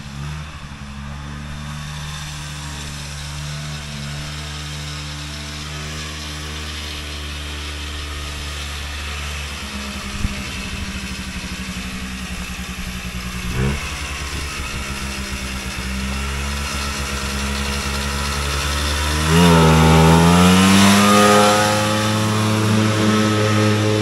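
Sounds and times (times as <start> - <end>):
snowmobile engine revving: 0.0 - 24.0.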